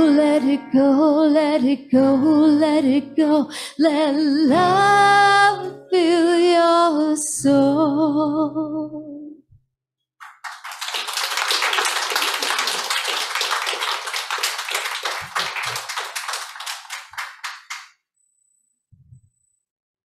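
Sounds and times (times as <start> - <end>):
audience applauding: 10.2 - 17.9.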